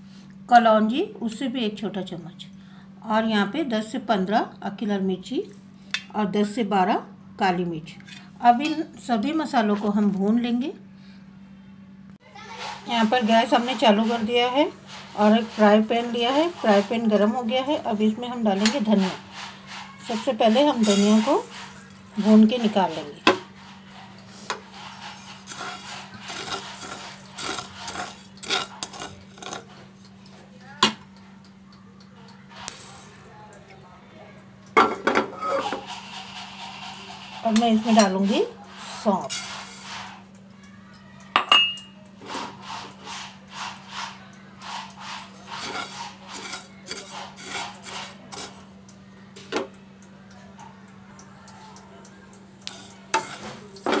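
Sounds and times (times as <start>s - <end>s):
spatula scraping seeds in a pan: 12.4s - 30.0s, 35.3s - 40.3s, 42.2s - 48.7s, 52.6s - 54.0s.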